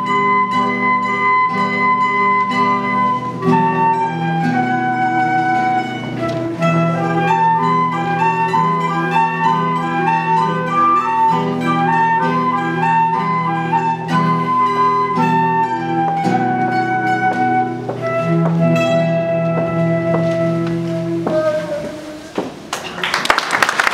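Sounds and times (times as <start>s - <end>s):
plucked guitar strings: 0.0s - 22.3s
flute playing melody: 0.0s - 22.5s.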